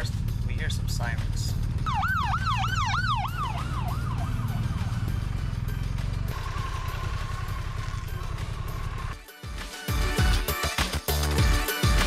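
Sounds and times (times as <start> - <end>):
low engine rumble: 0.0 - 9.2
background music: 0.0 - 12.0
siren in a fast yelp: 1.8 - 4.9.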